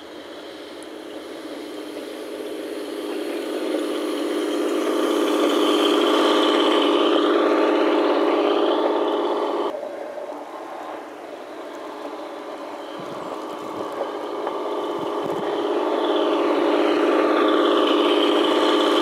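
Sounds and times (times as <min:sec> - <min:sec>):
model railcar running on track: 0:00.0 - 0:19.0.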